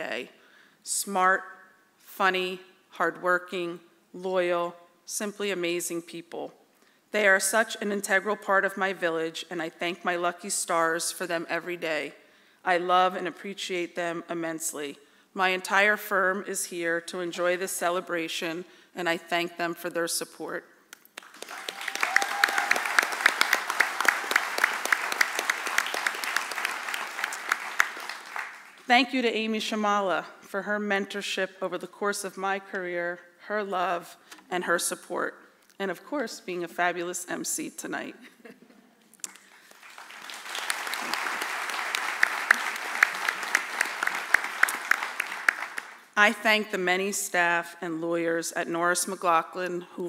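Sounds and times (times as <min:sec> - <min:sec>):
audience applauding: 0:21.2 - 0:28.8, 0:39.5 - 0:46.0.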